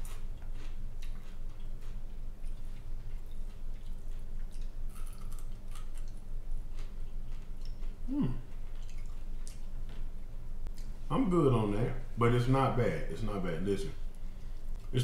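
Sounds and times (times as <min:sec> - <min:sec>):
crunchy chewing: 0:00.0 - 0:10.9
person humming mm: 0:08.0 - 0:08.6.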